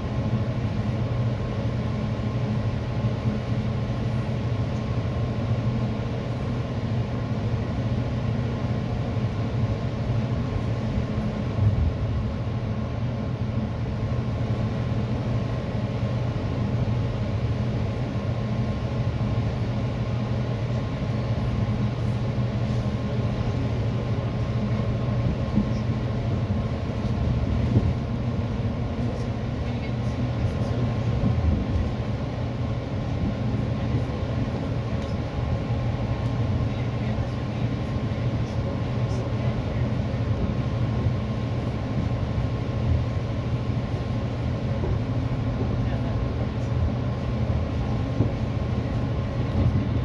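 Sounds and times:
train wheels rumbling on rail: 0:00.0 - 0:50.0.

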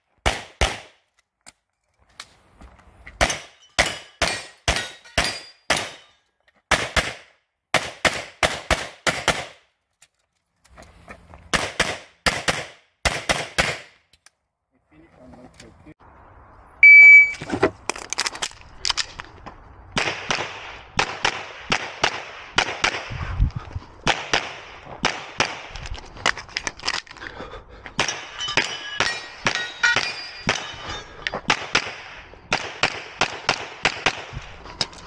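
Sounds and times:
pistol shots: 0:00.2 - 0:00.9, 0:06.7 - 0:09.6, 0:11.5 - 0:13.9, 0:31.5 - 0:34.3
metallic pings from steel targets: 0:03.2 - 0:06.3, 0:28.0 - 0:31.5
shot timer beep: 0:16.8 - 0:17.4.

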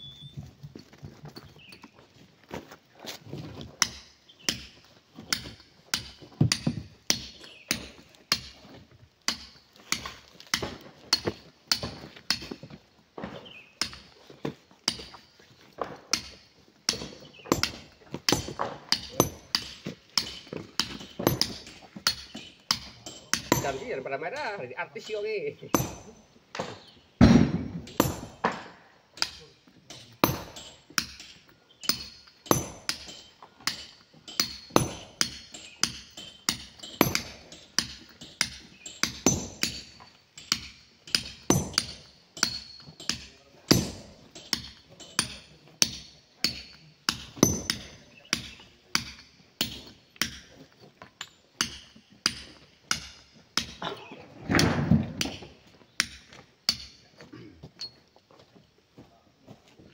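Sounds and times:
hammer striking steel wedges: 0:03.8 - 0:08.6, 0:09.3 - 0:12.4, 0:14.9 - 0:24.5, 0:25.7 - 0:50.5, 0:51.2 - 0:55.4, 0:56.0 - 0:57.0
heavy thud: 0:25.8 - 0:28.7.

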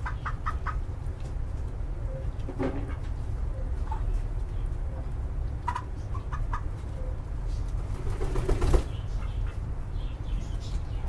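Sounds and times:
chickens clucking: 0:00.0 - 0:11.0
wing flapping: 0:07.8 - 0:09.0.

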